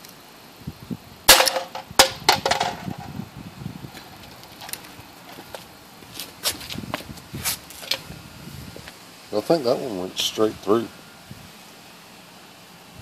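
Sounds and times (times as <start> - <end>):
pellet gun crack: 1.3 - 2.8.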